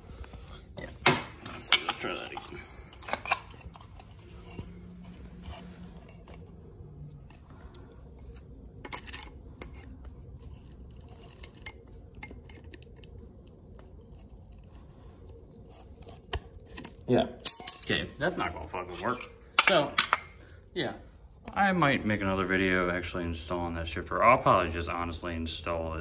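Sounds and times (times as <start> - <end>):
pliers clicking and scraping metal: 1.0 - 14.9.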